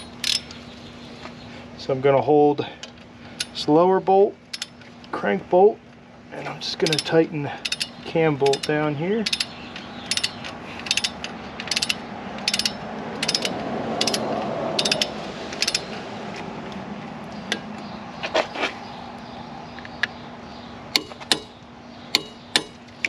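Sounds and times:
torque wrench ratchet clicks: 4.5 - 4.7, 6.8 - 14.2, 14.8 - 15.9.

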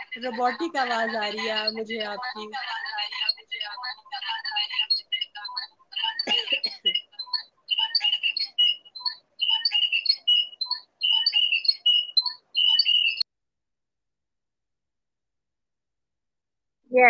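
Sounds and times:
choppy robotic voice: 0.0 - 13.2.

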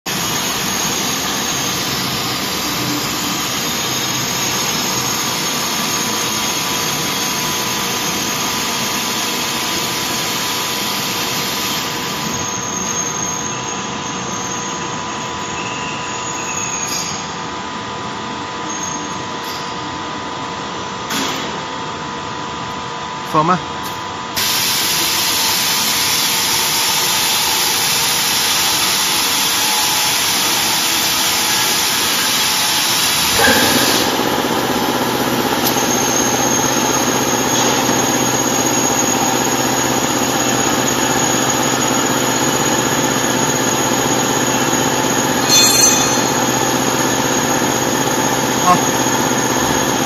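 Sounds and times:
mixer electric drive running: 0.1 - 15.6, 24.4 - 50.0
thin high whine: 33.2 - 34.3, 45.3 - 47.6.

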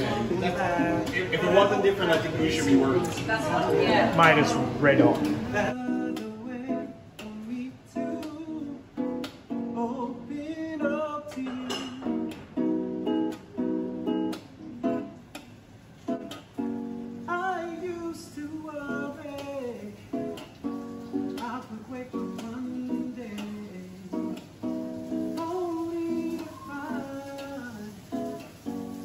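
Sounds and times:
person singing: 0.0 - 3.2, 5.2 - 12.4, 17.3 - 20.5, 21.2 - 24.6, 25.2 - 28.6
acoustic guitar strumming: 0.0 - 29.0.

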